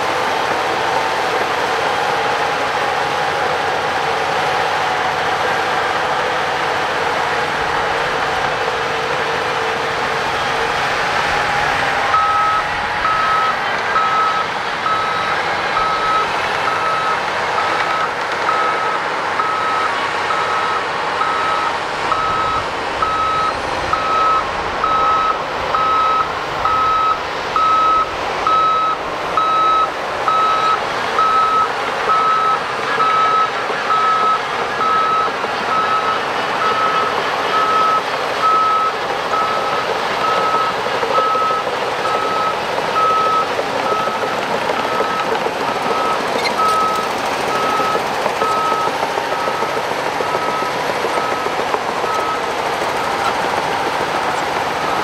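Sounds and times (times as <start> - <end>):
bulldozer engine and tracks: 0.0 - 55.0
backup alarm beeping: 12.1 - 53.3.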